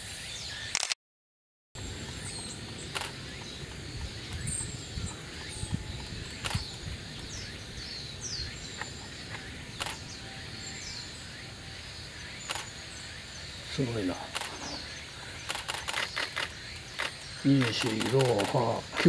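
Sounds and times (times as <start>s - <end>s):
birds giving high short calls: 1.9s - 19.0s
sharp clicks: 2.9s - 3.5s, 6.0s - 6.7s, 8.8s - 10.0s, 12.5s - 12.7s, 14.3s - 14.8s, 15.4s - 19.0s.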